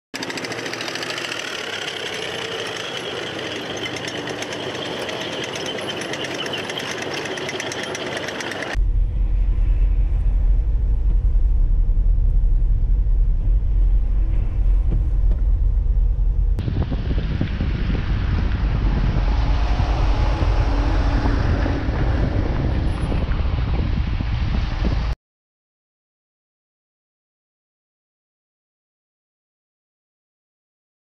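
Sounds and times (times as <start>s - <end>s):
clatter of tracks: 0.2s - 8.8s
armoured vehicle engines: 0.2s - 25.2s
road and wind rumble in car: 1.7s - 25.2s.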